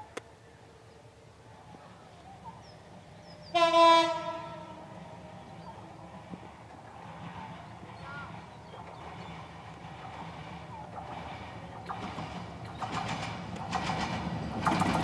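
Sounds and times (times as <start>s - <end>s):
locomotive horn blast: 3.5s - 5.0s.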